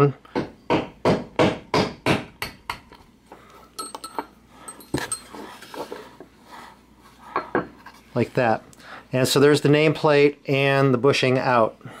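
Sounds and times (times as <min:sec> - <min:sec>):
metal parts clinking on wood: 0:03.8 - 0:05.4.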